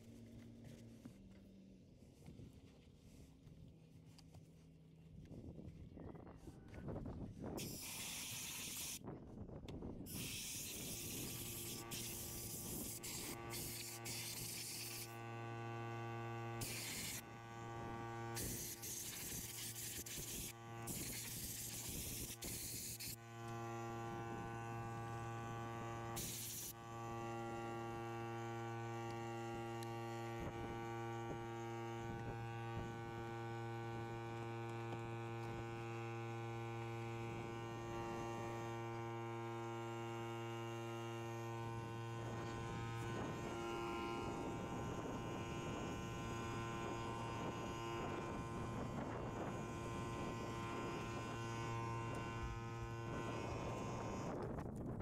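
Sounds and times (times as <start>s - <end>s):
electric machine hum: 7.5s - 55.0s
steam hissing in bursts: 7.6s - 9.0s, 10.1s - 15.1s, 16.6s - 17.2s, 18.4s - 23.2s, 26.2s - 26.7s.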